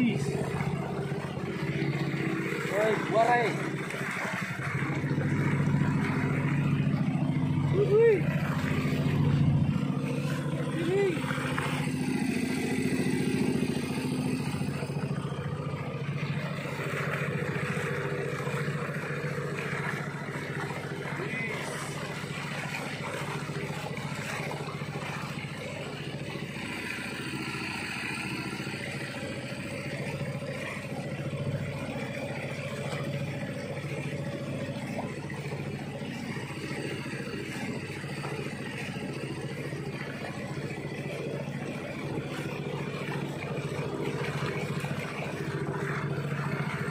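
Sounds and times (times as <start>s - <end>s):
boat engine running steadily: 0.0s - 46.9s.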